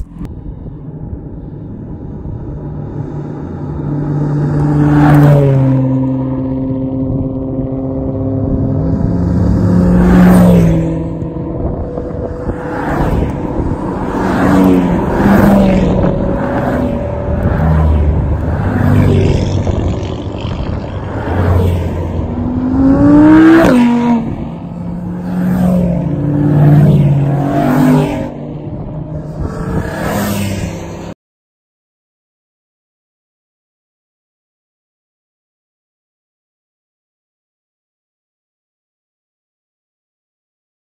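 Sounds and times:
cars driving past: 0:00.0 - 0:31.2.

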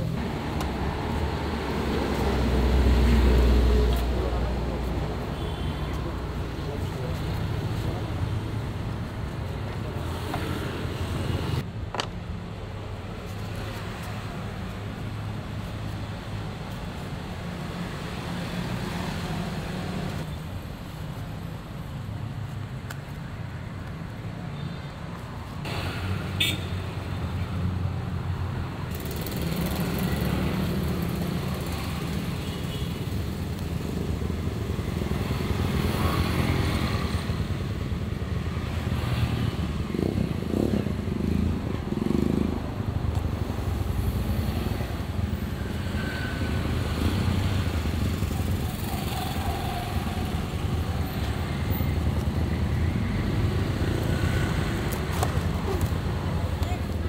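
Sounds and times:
cars passing: 0:00.0 - 0:11.7, 0:33.1 - 0:57.0
motorcycles passing: 0:00.0 - 0:11.7, 0:28.6 - 0:32.5, 0:33.4 - 0:57.0.

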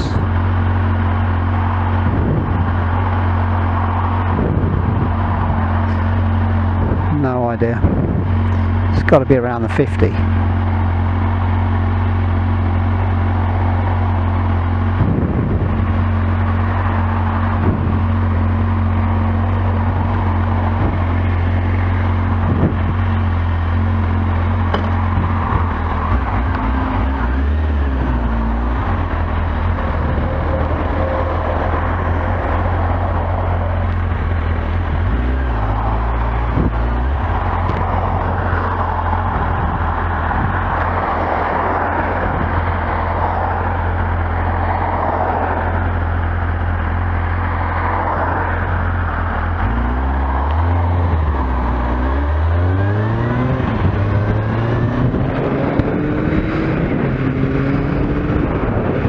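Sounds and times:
motorcycle engine idling: 0:00.0 - 0:40.9.

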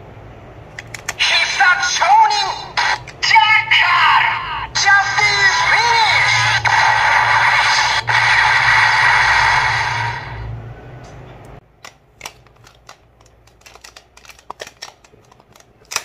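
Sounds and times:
plastic toy clicks: 0:00.7 - 0:01.2, 0:11.8 - 0:16.0
toy electronic sound effect: 0:04.8 - 0:10.4.

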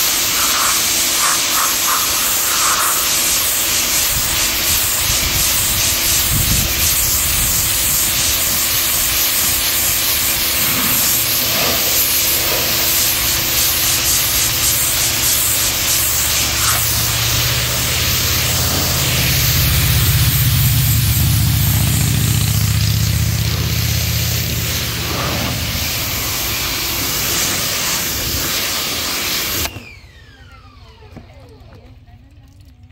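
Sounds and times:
pressure washer spraying: 0:00.0 - 0:29.8
low rumble: 0:16.4 - 0:27.3.

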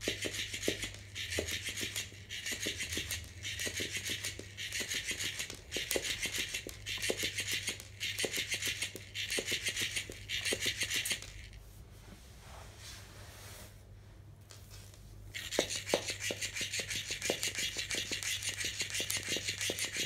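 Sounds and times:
toy motor buzzing and clicking: 0:00.0 - 0:11.6, 0:15.3 - 0:20.0.

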